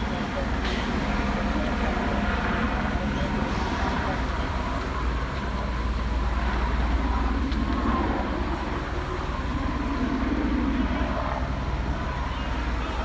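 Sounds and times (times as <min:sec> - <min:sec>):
low engine rumble: 0:00.0 - 0:13.0
street noise: 0:00.0 - 0:13.0.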